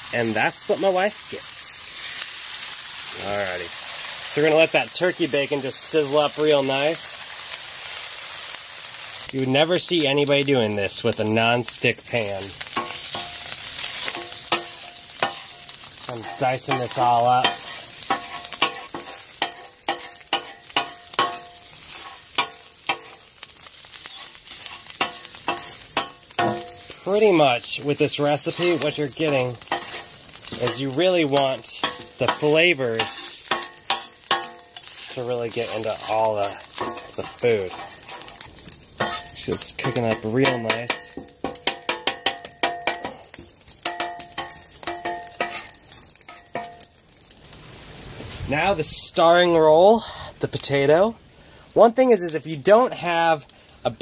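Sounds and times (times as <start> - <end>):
bacon sizzling: 0.0 - 54.0
knife clacking on steel griddle: 16.3 - 23.2, 31.8 - 34.9, 36.8 - 38.4, 39.0 - 46.8.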